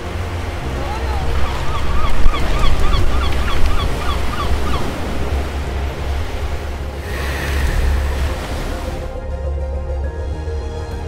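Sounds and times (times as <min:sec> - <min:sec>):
surf on a beach: 0:00.0 - 0:09.2
wind rumble: 0:01.6 - 0:09.2.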